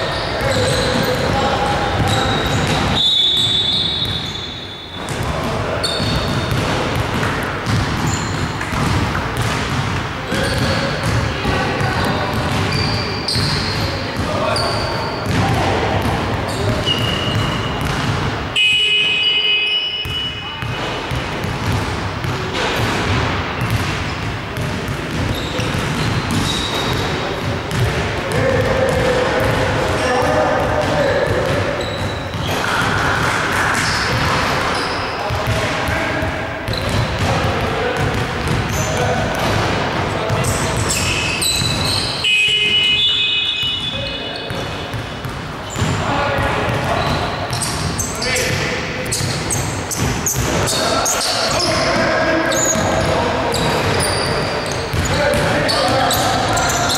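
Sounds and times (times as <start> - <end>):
ball bouncing on hardwood court: 0.0 - 56.9
referee's whistle blast: 2.1 - 5.1, 18.6 - 20.6, 40.9 - 44.5
basketball bouncing on hardwood: 5.9 - 14.3, 15.2 - 18.3, 20.0 - 29.7.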